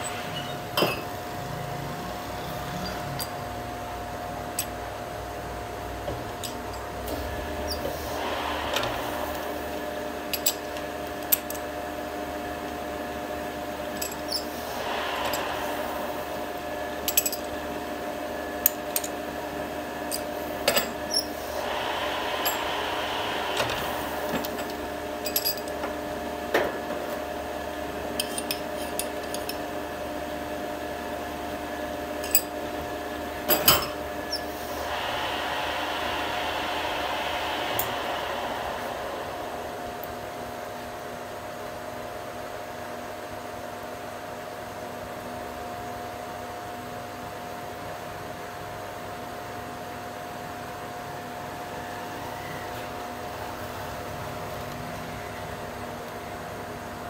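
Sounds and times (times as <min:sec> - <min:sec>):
steady machine hum: 0:00.0 - 0:44.6.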